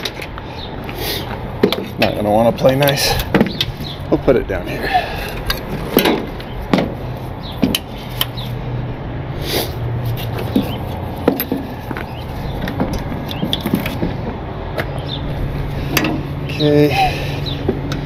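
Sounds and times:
steady low hum: 0.0 - 18.0
metallic clinks and knocks: 10.2 - 14.1.

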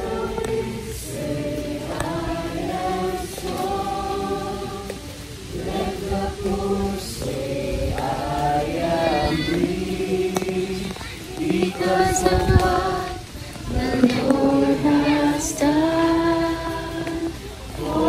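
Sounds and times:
group singing worship song: 0.0 - 18.0.

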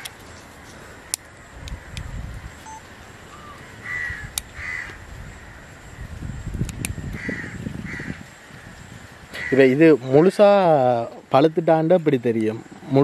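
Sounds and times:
crows cawing: 3.4 - 5.8, 7.0 - 9.9.

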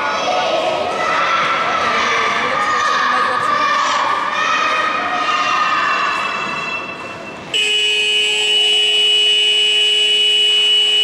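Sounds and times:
children shouting: 0.0 - 7.5.

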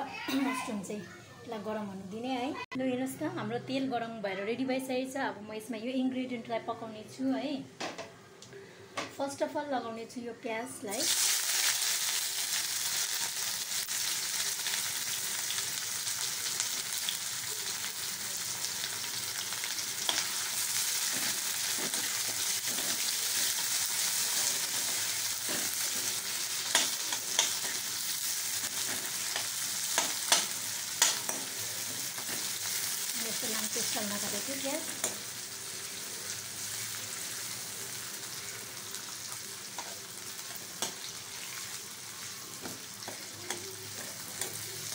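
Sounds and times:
onions sizzling in hot oil: 10.8 - 44.9
metal spoon scraping a pan: 21.0 - 28.0, 28.6 - 32.9.

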